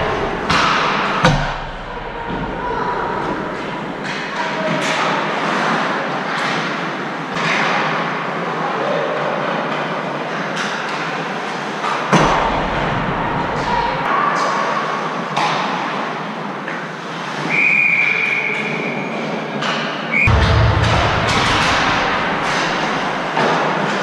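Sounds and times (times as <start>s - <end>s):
loud bang: 0.0s - 4.0s, 20.2s - 23.9s.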